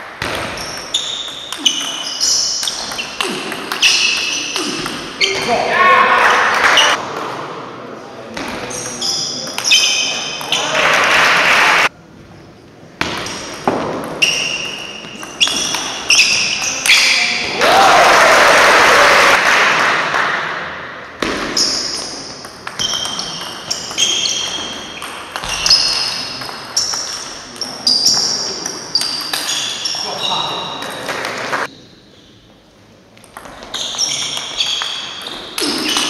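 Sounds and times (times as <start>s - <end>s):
table tennis ball hits: 0.0s - 5.5s, 13.0s - 17.6s, 20.0s - 29.7s
crowd applause and cheering: 17.5s - 20.7s.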